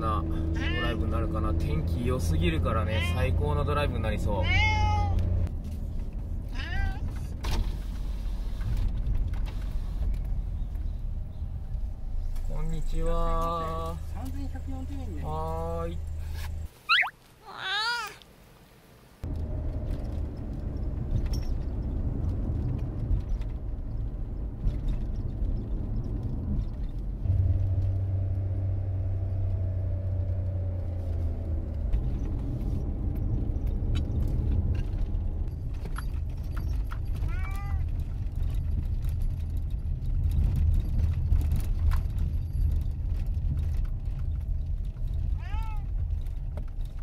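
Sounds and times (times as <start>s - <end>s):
car road and engine noise: 0.0s - 47.0s
cat meowing: 0.6s - 1.0s, 2.8s - 3.3s, 4.4s - 5.2s, 6.6s - 7.0s, 16.9s - 18.2s, 37.2s - 37.9s, 45.4s - 45.9s.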